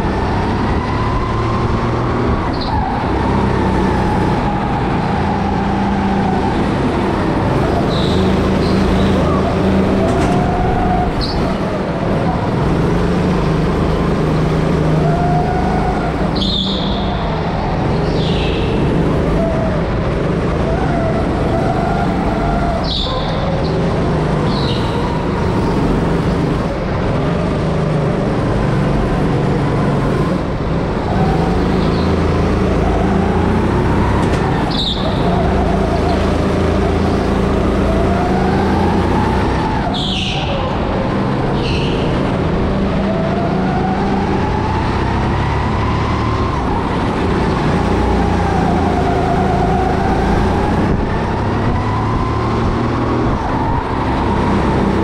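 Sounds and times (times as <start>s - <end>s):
go-kart motor: 0.0s - 55.0s
tyre squeals: 7.2s - 11.8s, 15.0s - 17.4s, 20.8s - 25.8s, 31.1s - 40.9s.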